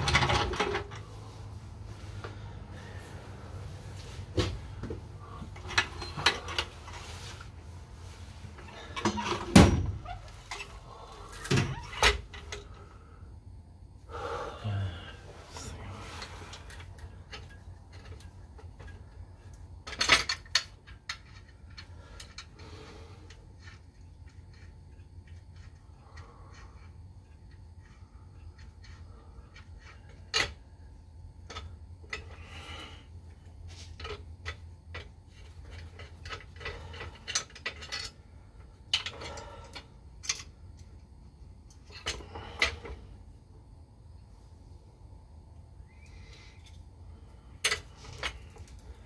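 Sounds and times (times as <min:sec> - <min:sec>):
metal tools clinking and knocking: 0:00.0 - 0:01.1, 0:05.5 - 0:06.8, 0:15.9 - 0:22.5, 0:31.4 - 0:40.6, 0:47.6 - 0:49.0
faint low hum: 0:00.0 - 0:49.0.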